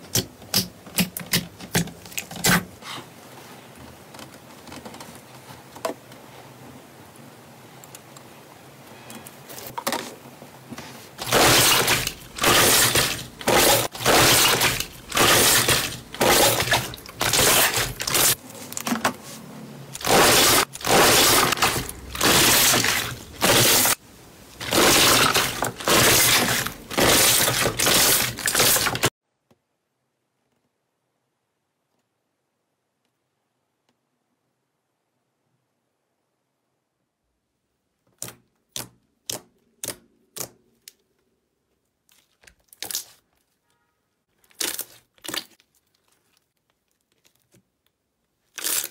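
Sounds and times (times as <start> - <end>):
slime crackling and popping: 44.4 - 47.6.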